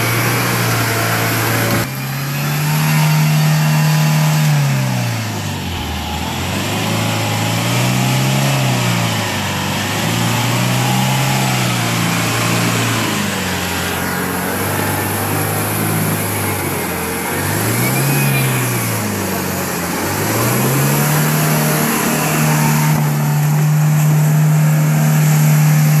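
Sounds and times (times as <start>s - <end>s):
engine revving under load: 0.0s - 26.0s.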